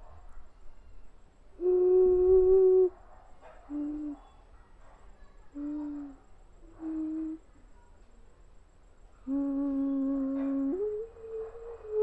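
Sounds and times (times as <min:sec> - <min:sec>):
vessel flute hooting: 0:01.6 - 0:03.0.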